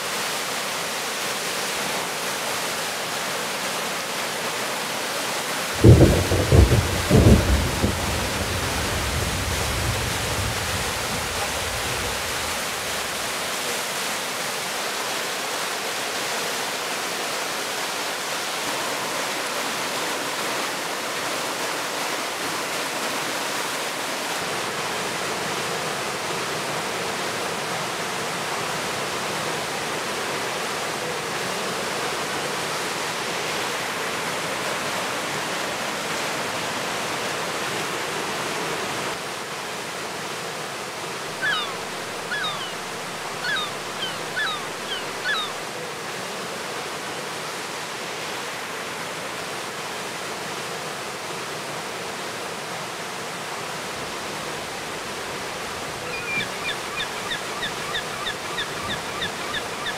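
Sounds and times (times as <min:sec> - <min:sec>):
river whitewater pouring over rocks: 0:00.0 - 0:59.9
bird calling: 0:41.3 - 0:45.6, 0:56.0 - 0:59.9.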